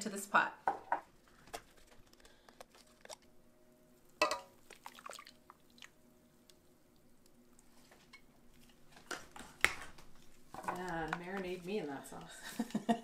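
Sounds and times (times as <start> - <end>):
thick sauce pouring and dripping: 4.6 - 7.7.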